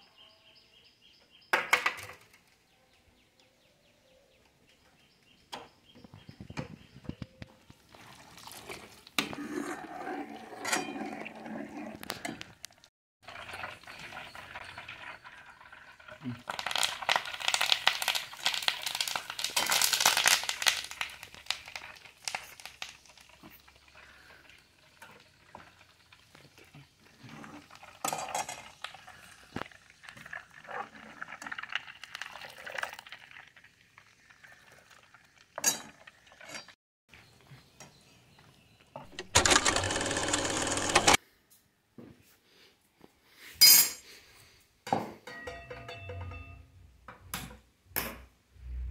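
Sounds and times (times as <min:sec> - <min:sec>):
ladle clinking against pan: 0:45.3 - 0:46.6.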